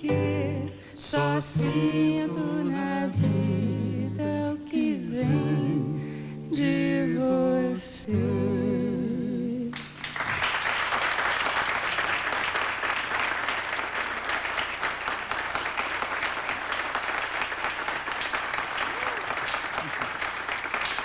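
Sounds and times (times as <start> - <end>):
person singing: 0.0 - 9.8
audience applauding: 9.8 - 21.0.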